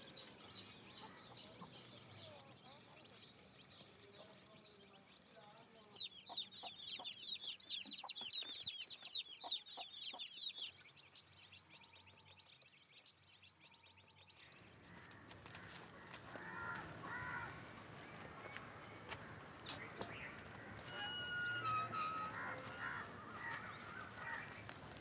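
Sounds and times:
baby chicks peeping: 0.1s - 14.4s.

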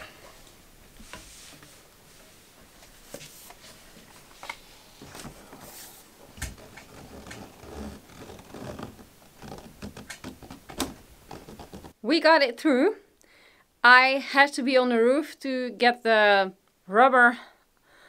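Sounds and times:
pipe rubbing against rubber: 6.6s - 10.6s.

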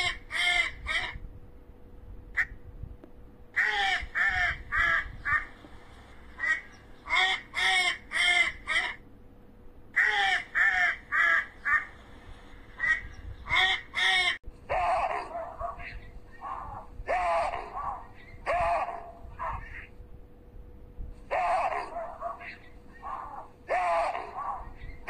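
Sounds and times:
duck quacking: 6.3s - 9.0s, 12.8s - 19.8s.

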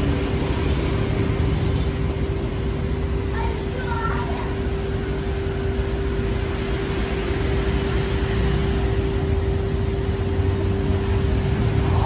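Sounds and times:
mid-pitched hum: 0.0s - 12.0s
low rumble: 8.6s - 12.0s.

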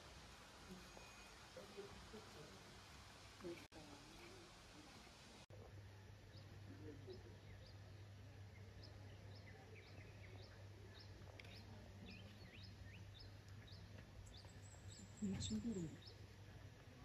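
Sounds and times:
small bird chirping: 6.3s - 16.2s.

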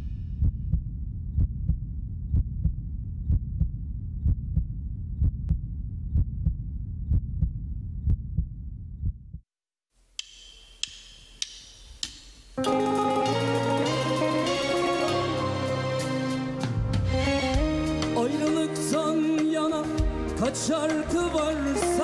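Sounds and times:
heartbeat double thump: 0.4s - 9.5s.

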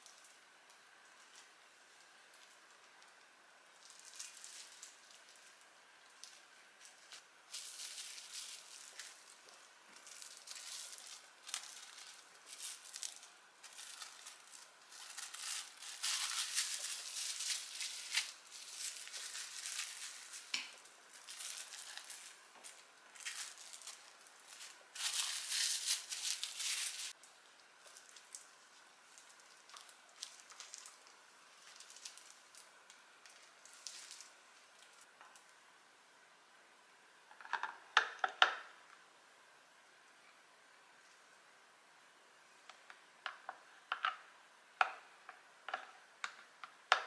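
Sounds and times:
cling film crinkling: 3.8s - 35.4s.

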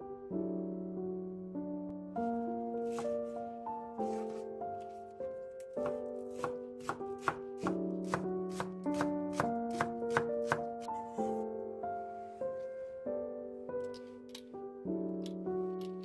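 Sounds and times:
background music: 0.0s - 16.0s
knife chopping on wooden board: 5.8s - 10.9s.

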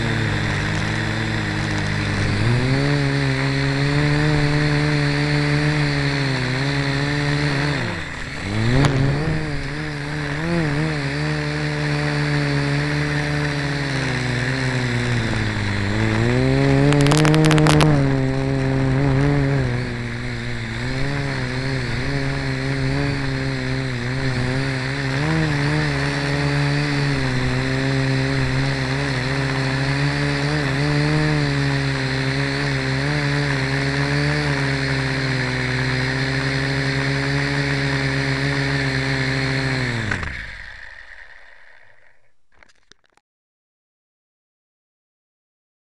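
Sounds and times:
quadcopter motors whining: 0.0s - 43.2s
crackling burst: 13.4s - 26.4s.

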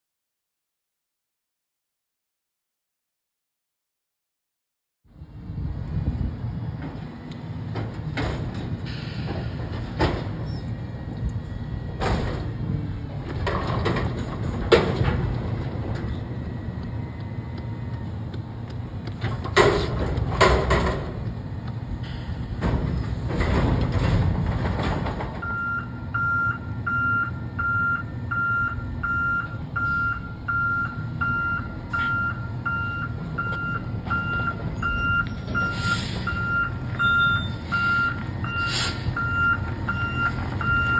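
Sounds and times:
garbage truck engine running: 5.2s - 40.9s
reverse alarm beeping: 25.4s - 40.9s
air hisses: 38.6s - 39.2s.

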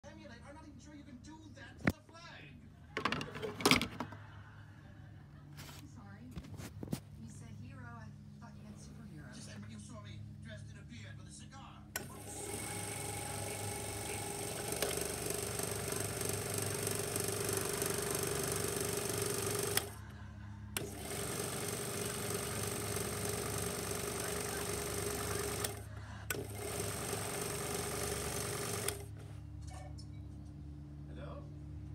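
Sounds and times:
projector motor whirring: 11.9s - 29.6s.

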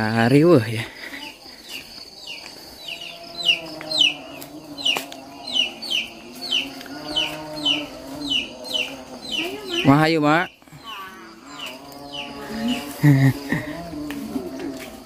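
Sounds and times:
chicks peeping: 1.2s - 13.0s.

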